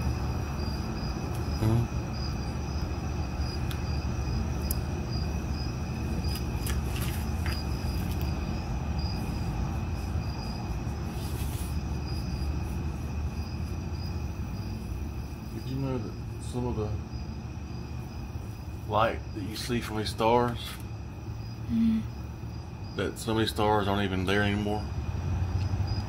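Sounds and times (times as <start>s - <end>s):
crickets chirping: 0.0s - 26.0s.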